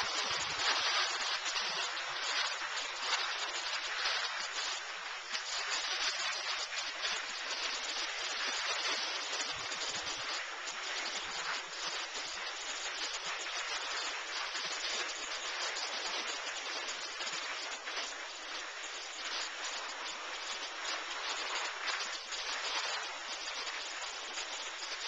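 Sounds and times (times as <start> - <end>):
sliding over soft snow: 0.0 - 25.0.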